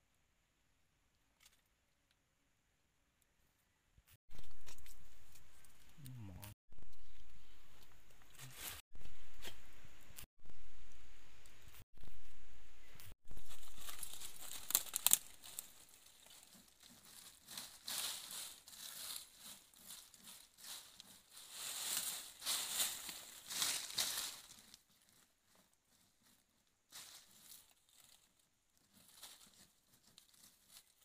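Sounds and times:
sharp crackles: 0:13.0 - 0:24.8
hand scraping dry soil: 0:13.3 - 0:31.0.

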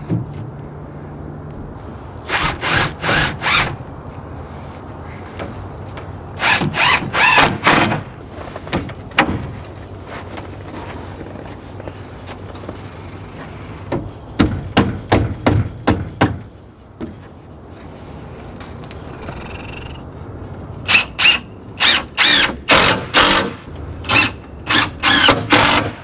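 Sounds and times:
cordless drill driving screws: 0:20.9 - 0:23.5, 0:24.1 - 0:26.0.

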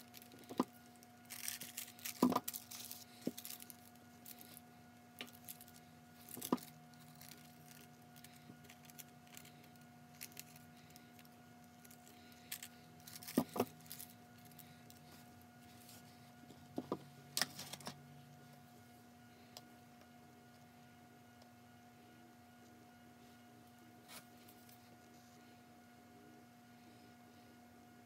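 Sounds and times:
paper crinkling: 0:00.0 - 0:04.6, 0:05.2 - 0:16.2
faint hum: 0:00.0 - 0:28.0.

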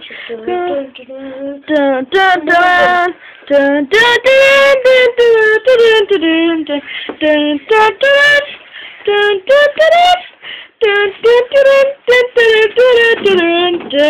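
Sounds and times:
child singing: 0:00.0 - 0:14.0.

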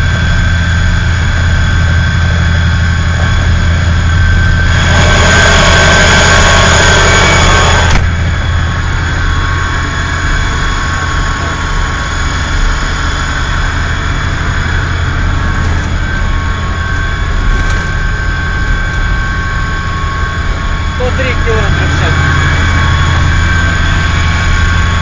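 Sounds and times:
diesel engine drone: 0:00.0 - 0:25.0.

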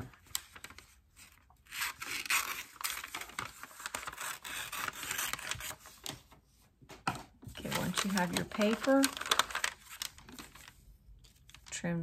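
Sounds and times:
paper rustling: 0:00.0 - 0:11.8
scissors snipping paper: 0:01.7 - 0:05.8.

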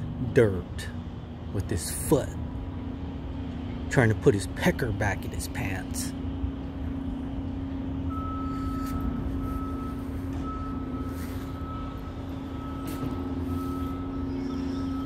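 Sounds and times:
low mechanical hum: 0:00.0 - 0:15.0
faint higher tone: 0:08.1 - 0:15.0.

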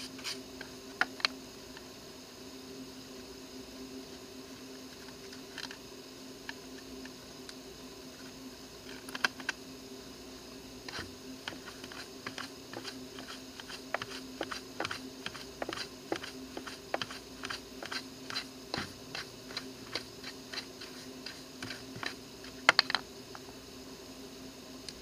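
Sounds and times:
brush sweeping scratchy clicks: 0:10.9 - 0:22.7.

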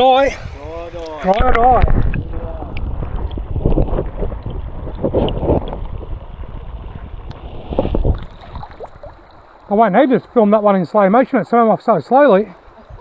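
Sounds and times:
muffled underwater stream gurgling: 0:01.4 - 0:10.6.

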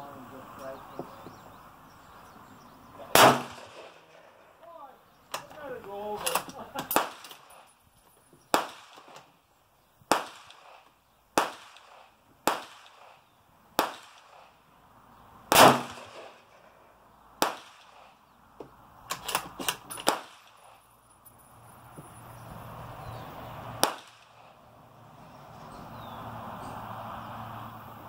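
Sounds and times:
gunshots with ringing tail: 0:03.1 - 0:04.6, 0:15.5 - 0:16.8, 0:19.9 - 0:20.8, 0:23.8 - 0:24.6.

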